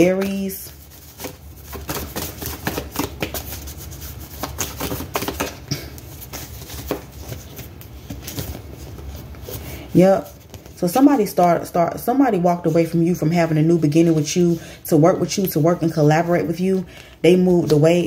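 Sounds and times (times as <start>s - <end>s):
cards being shuffled: 0.0s - 11.2s.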